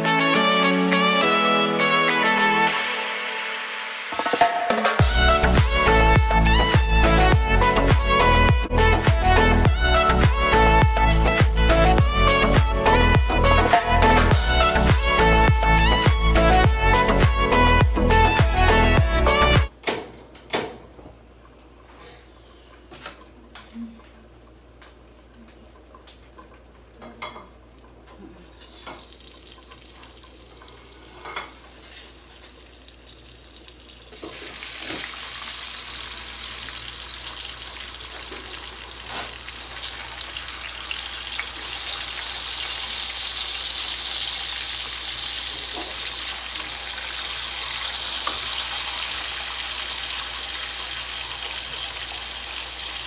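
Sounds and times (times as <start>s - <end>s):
oil crackling in a frying pan: 28.6s - 53.0s
ham sizzling in hot oil: 28.7s - 53.0s.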